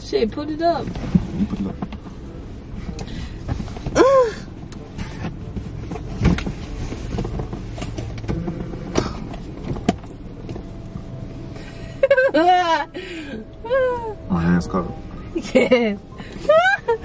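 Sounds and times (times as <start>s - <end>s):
people shifting on car seats: 0.6s - 10.8s.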